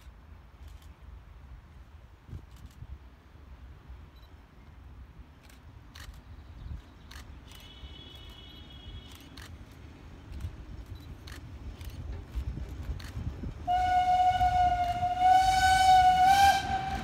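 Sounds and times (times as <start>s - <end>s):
steam train rumble: 7.1s - 17.0s.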